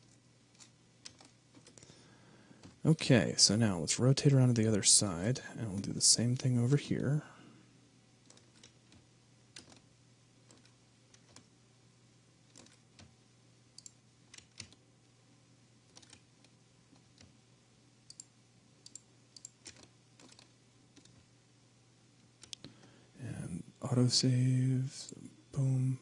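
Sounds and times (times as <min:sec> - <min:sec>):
mouse and keyboard clicks: 0:00.0 - 0:01.8, 0:13.8 - 0:14.8, 0:15.9 - 0:17.3, 0:18.1 - 0:21.2
steady low hum: 0:00.0 - 0:26.0.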